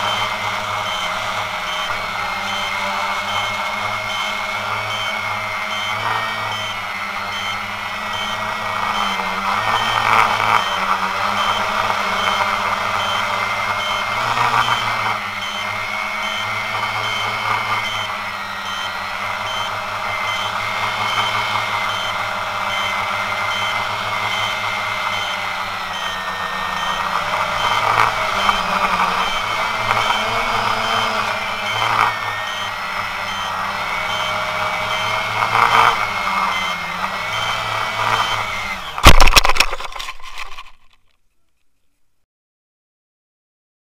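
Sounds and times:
faint high beep: 0.0 - 40.0
quadcopter motors whining: 0.0 - 41.0.

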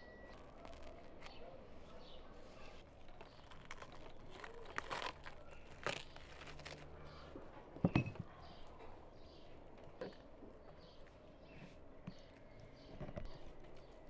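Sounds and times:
plastic film crinkling: 0.3 - 1.4, 2.8 - 7.0.

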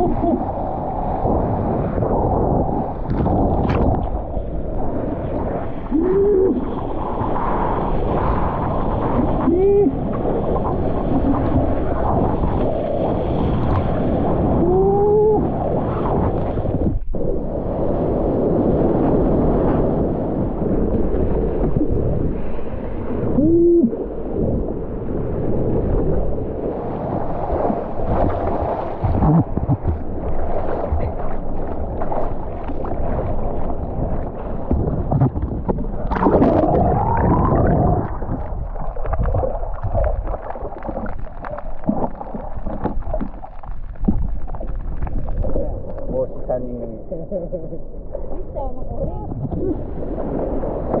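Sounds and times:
muffled underwater bubbling: 0.0 - 7.3, 9.0 - 17.8, 26.8 - 51.0
sea water rushing and sloshing: 0.0 - 51.0.

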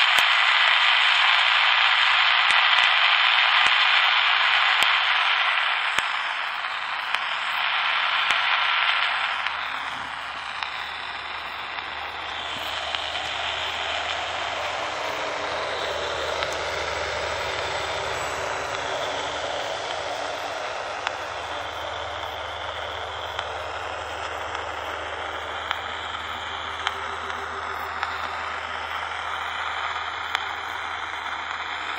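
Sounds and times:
faint wavering whistles: 0.0 - 31.9
walkie-talkie radio static hiss: 0.0 - 31.9
low rumble: 9.4 - 31.9.

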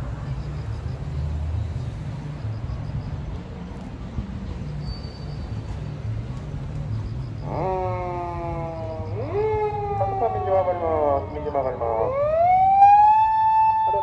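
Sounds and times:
rumble of passing cars: 0.0 - 14.0
police siren wailing: 7.4 - 14.0.

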